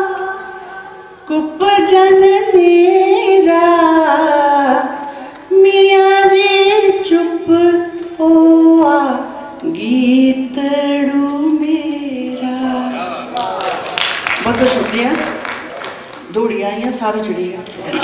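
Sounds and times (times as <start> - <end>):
woman singing unaccompanied: 0.0 - 13.1.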